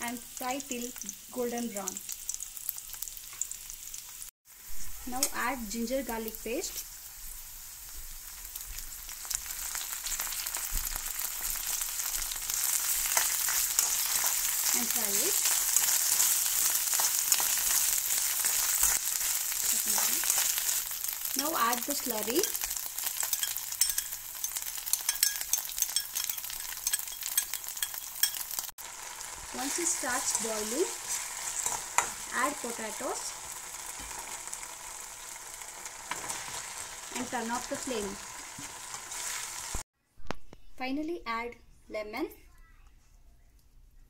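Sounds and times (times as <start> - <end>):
food sizzling in hot oil: 0.0 - 39.9
steel spoon stirring: 11.4 - 28.7, 29.5 - 32.4
metal spoon clicking on pan: 22.3 - 28.6.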